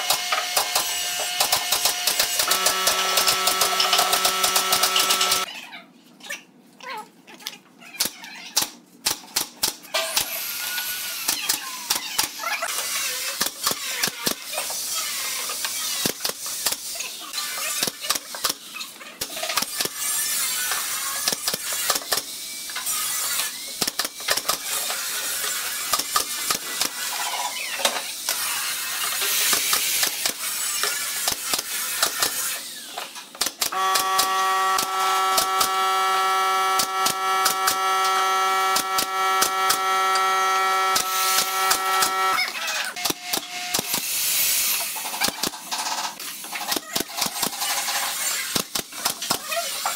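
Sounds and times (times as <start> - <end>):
nail gun firing: 0.0 - 5.4, 33.4 - 42.4.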